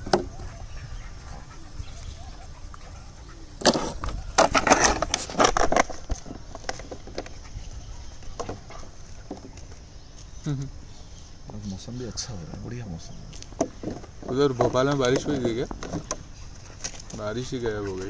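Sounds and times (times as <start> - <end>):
dogs scuffling: 13.3 - 18.0.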